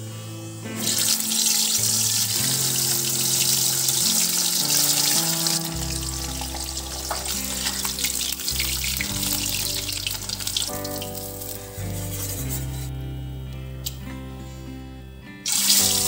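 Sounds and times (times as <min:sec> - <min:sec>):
slow background music: 0:00.0 - 0:16.0
fish sizzling in hot oil: 0:00.8 - 0:11.6, 0:15.5 - 0:16.0.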